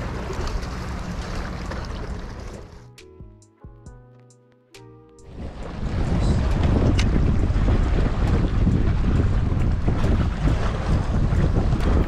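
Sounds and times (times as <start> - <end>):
plucked music notes: 2.9 - 5.4
wind buffeting microphone: 5.2 - 12.0.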